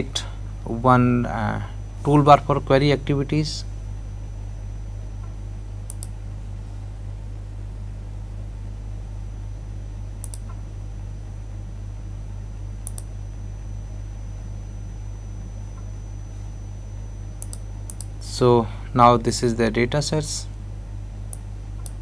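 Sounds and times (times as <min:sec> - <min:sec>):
low hum: 0:00.0 - 0:22.0
computer mouse clicks: 0:05.8 - 0:06.2, 0:10.2 - 0:10.6, 0:12.8 - 0:13.1, 0:17.4 - 0:18.1, 0:21.3 - 0:22.0.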